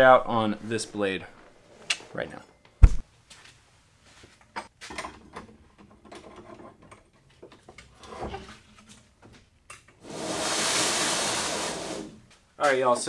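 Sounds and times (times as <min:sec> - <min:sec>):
loud steady hiss: 0:10.0 - 0:12.2.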